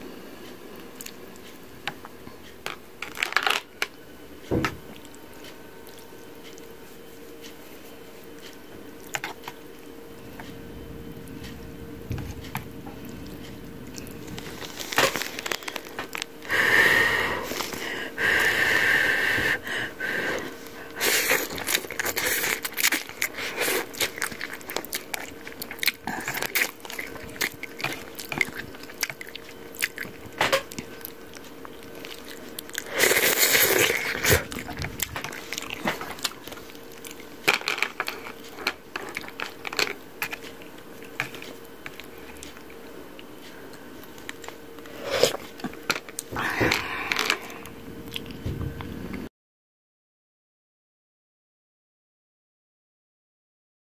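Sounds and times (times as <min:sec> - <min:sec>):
noodle slurping: 0:21.0 - 0:30.1, 0:31.9 - 0:36.5.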